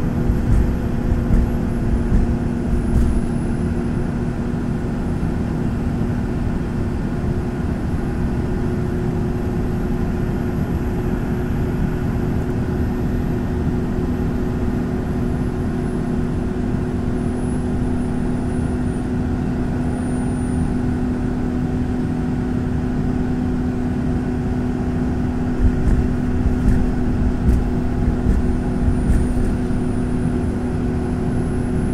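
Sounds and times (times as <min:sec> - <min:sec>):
low thumps and knocks: 0:00.0 - 0:03.3, 0:25.5 - 0:29.8
tyre and road noise: 0:00.0 - 0:03.9, 0:25.4 - 0:30.9
car engine drone: 0:00.0 - 0:31.9.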